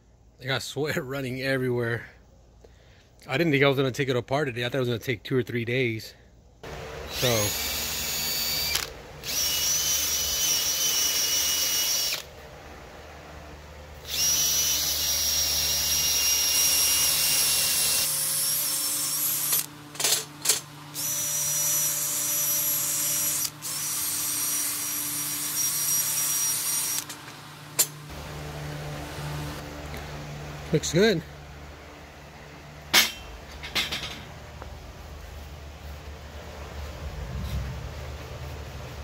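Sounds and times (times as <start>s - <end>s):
drill wire brush scrubbing metal: 7.1s - 12.2s, 14.0s - 27.9s.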